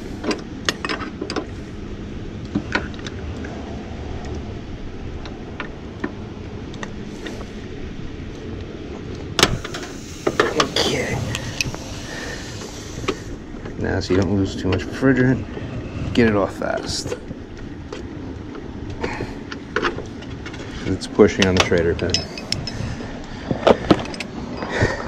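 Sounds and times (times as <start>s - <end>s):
tools clattering on metal: 21.3s - 22.8s.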